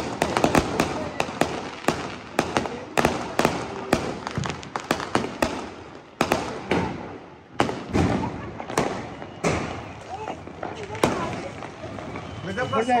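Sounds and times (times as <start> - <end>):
firecrackers bursting: 0.0 - 13.0
continuous crackling: 9.8 - 12.4.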